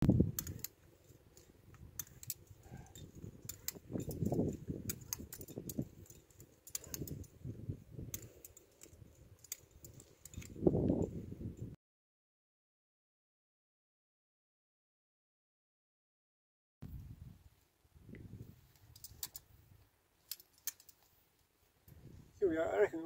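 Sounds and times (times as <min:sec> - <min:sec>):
climbing gear clinking: 0:00.2 - 0:11.7, 0:18.7 - 0:19.5, 0:20.2 - 0:21.2.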